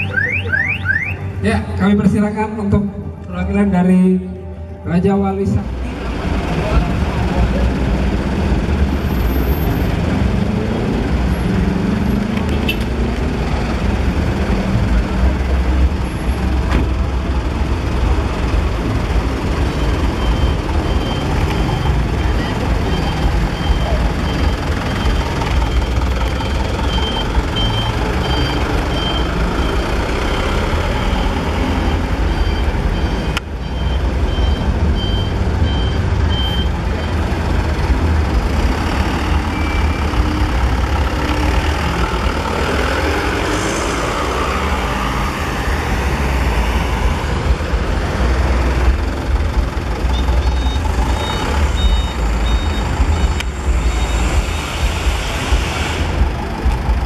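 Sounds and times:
higher-pitched beeps: 0.0 - 1.4, 19.7 - 37.2, 50.1 - 54.2
reversing alarm beeping: 0.0 - 1.4, 19.7 - 37.2, 39.3 - 40.4, 50.1 - 54.9
truck engines rumbling: 0.0 - 57.0.

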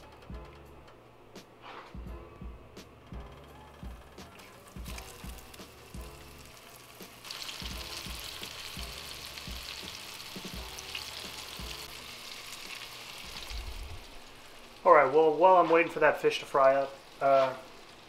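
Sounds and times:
fish fillets sizzling in hot oil: 4.6 - 18.0.

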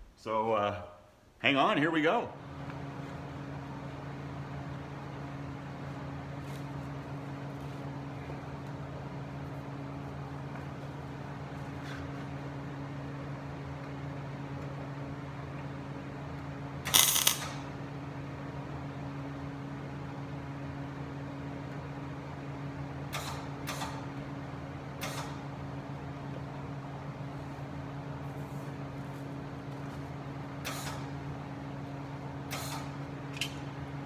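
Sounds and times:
steady low hum: 0.0 - 34.0
welder arc crackle: 16.8 - 17.7.

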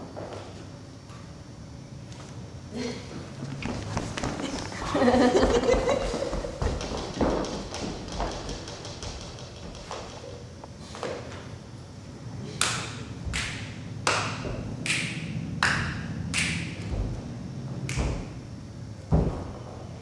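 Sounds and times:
sharp knocks: 6.6 - 10.2, 19.1 - 19.8.

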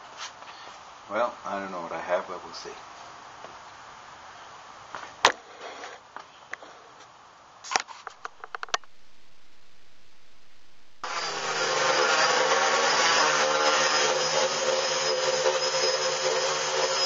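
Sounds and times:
quadcopter motors whining: 8.2 - 17.0.

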